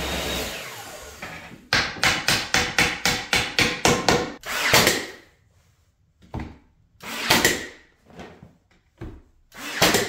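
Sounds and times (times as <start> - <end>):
nail gun firing: 2.1 - 5.1, 7.1 - 7.7, 9.6 - 10.0.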